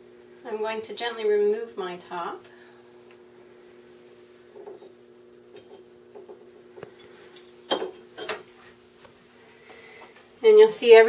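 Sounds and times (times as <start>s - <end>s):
faint steady hum: 0.0s - 11.0s
metal utensils clinking: 7.0s - 8.5s.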